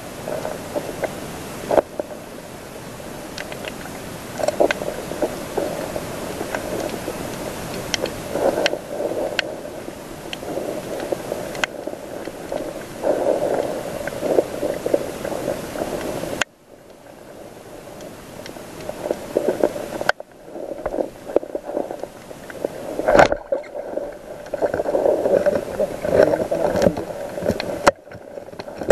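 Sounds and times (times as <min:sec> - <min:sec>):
underwater rushing water hiss: 0:00.0 - 0:28.9
sharp underwater clicks: 0:03.3 - 0:09.6, 0:10.3 - 0:17.0.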